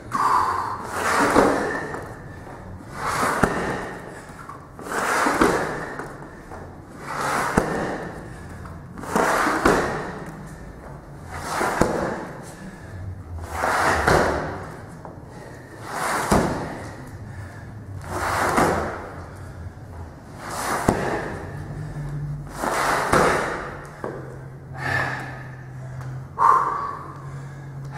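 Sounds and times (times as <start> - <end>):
sandbag scraping on rubber floor: 0.9 - 1.8, 2.9 - 3.8, 4.8 - 6.0, 7.0 - 7.9, 9.0 - 10.0, 11.3 - 12.2, 13.4 - 14.3, 15.8 - 16.9, 18.0 - 19.0, 20.4 - 21.4, 22.5 - 23.5.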